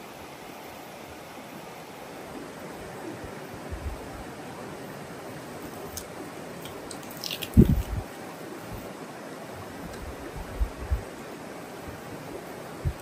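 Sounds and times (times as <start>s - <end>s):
stream rushing: 0.0s - 13.0s
dull low thumps: 7.5s - 8.0s.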